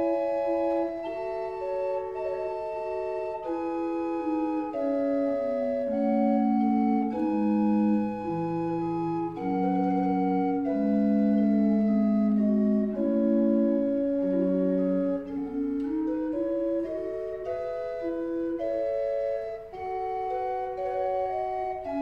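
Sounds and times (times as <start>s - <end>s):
chamber organ held notes: 0.0s - 22.0s.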